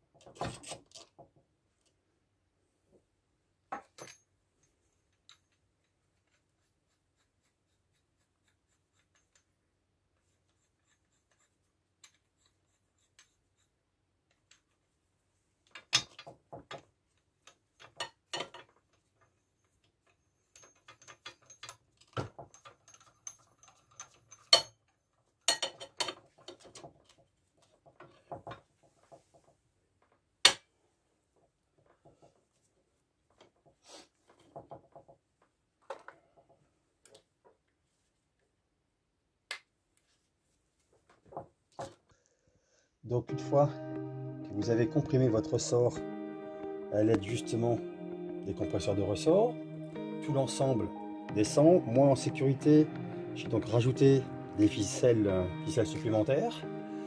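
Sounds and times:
metal clinks and knocks: 0:03.7 - 0:05.6, 0:20.4 - 0:27.2.

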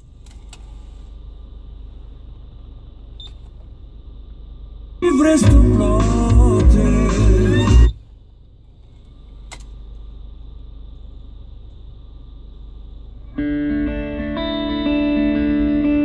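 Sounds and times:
faint steady hum: 0:00.0 - 0:16.0
car stereo music: 0:05.0 - 0:08.0
electric guitar music: 0:13.3 - 0:16.0.

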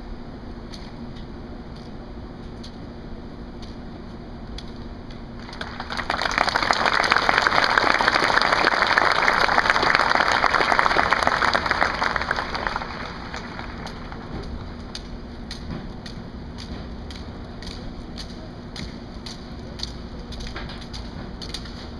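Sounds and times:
audience applauding: 0:05.4 - 0:14.8.

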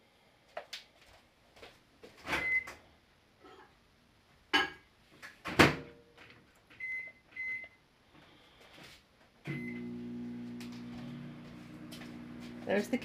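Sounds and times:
keypad beeps: 0:06.8 - 0:07.8
microwave oven humming: 0:09.5 - 0:13.0.

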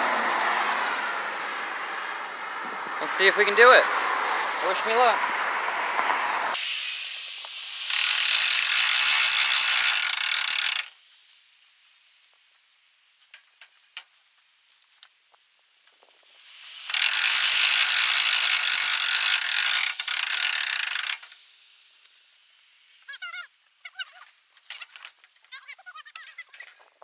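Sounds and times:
winch ratcheting: 0:07.9 - 0:10.9, 0:16.8 - 0:21.4.

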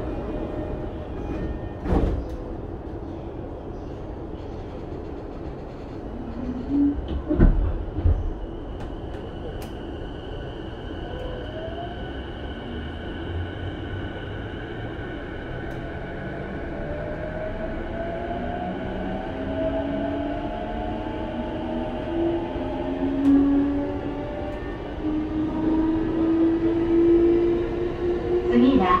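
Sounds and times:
train inverter rising whine: 0:08.2 - 0:29.0.

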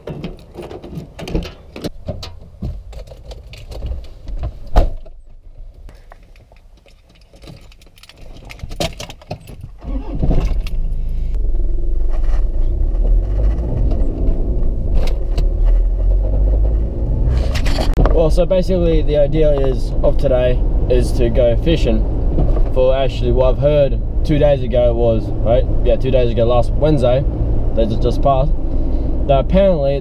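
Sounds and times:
car keys jangling: 0:06.0 - 0:11.1
car engine starting and running: 0:09.7 - 0:30.0.

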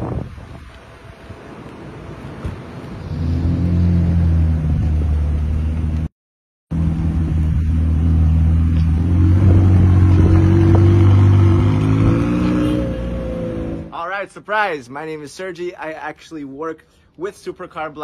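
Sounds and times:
car engine droning: 0:00.8 - 0:06.1, 0:06.7 - 0:13.9.

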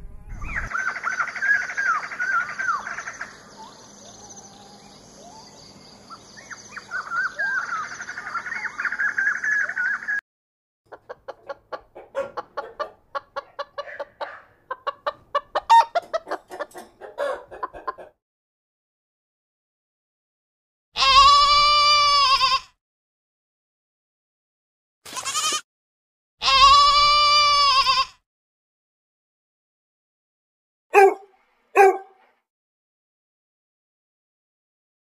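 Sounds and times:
hens clucking: 0:10.9 - 0:18.2.

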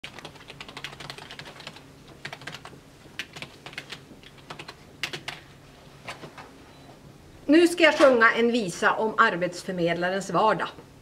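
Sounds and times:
typing on computer keyboard: 0:00.0 - 0:05.4.

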